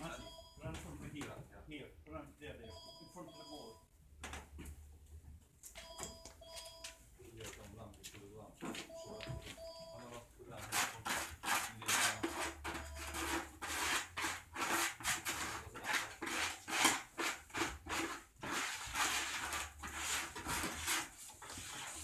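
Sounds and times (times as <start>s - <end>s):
hands swishing wet plaster: 13.8s - 22.0s.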